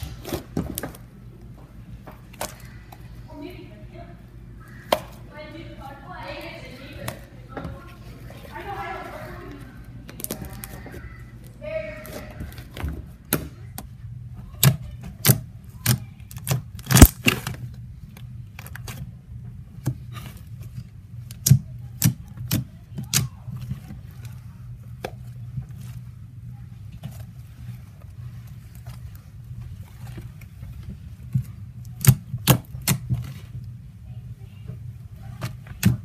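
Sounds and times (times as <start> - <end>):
low steady hum: 0.0 - 36.0
fingers squishing slime: 11.9 - 19.1, 19.7 - 26.0.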